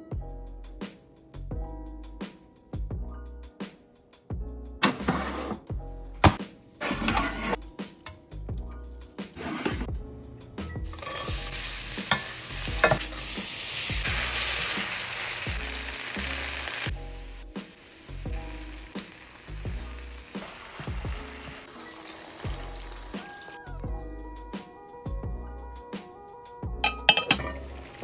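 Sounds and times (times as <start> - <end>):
rice sizzling in a frying pan: 10.9 - 23.6, 27.5 - 28.0.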